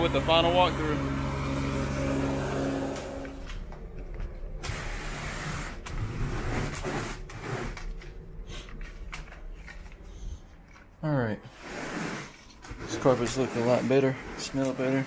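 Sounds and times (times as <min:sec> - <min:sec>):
rake rubbing through carpet: 0:04.6 - 0:08.8, 0:11.5 - 0:15.0.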